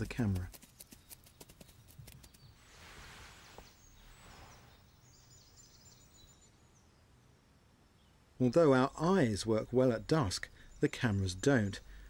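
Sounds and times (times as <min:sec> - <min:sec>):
rustling noise: 0:00.0 - 0:05.0.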